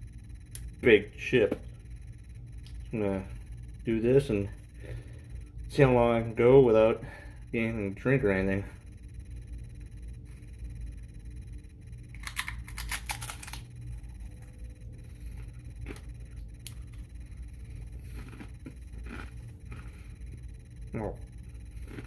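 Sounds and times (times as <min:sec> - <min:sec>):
steady low hum: 0:00.0 - 0:22.0
crunching tortilla chip: 0:12.1 - 0:13.7, 0:18.0 - 0:20.0
person chewing: 0:12.2 - 0:13.6, 0:15.3 - 0:17.0, 0:17.7 - 0:20.4, 0:21.6 - 0:22.0.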